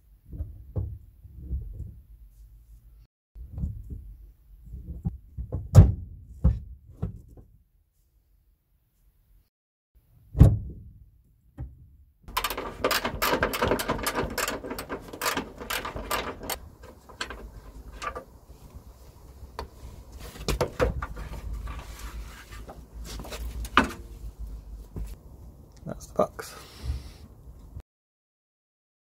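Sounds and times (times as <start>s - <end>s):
heavy clunk: 12.3s - 18.4s
handling noise rustling and scraping: 12.3s - 25.2s.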